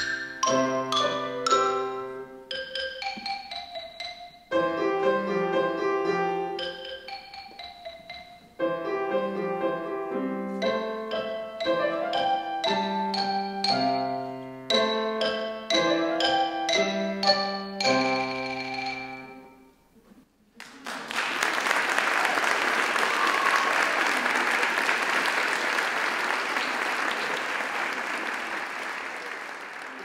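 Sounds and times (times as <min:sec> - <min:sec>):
marimba: 0:00.0 - 0:19.7
piano notes: 0:00.0 - 0:19.8.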